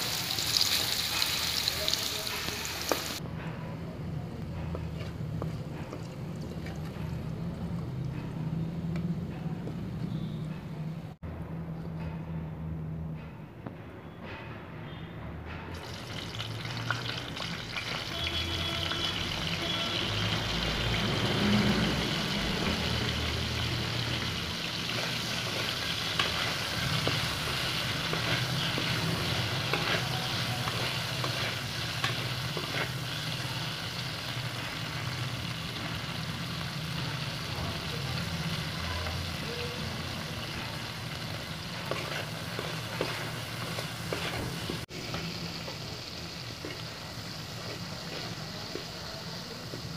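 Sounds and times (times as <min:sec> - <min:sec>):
food frying in oil: 0:00.0 - 0:03.2, 0:15.8 - 0:49.9
metal spatula scraping pan: 0:23.9 - 0:33.5, 0:41.7 - 0:45.3.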